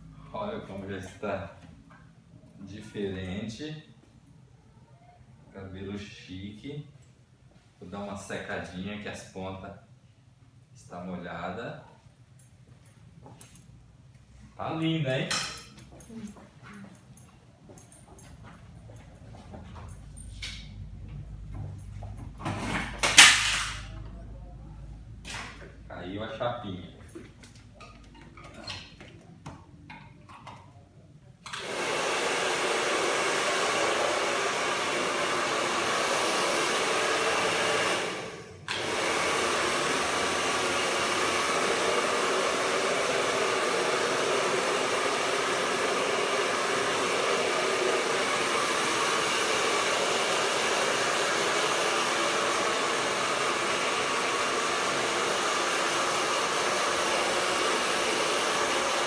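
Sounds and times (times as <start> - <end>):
hair dryer blowing: 31.5 - 59.0.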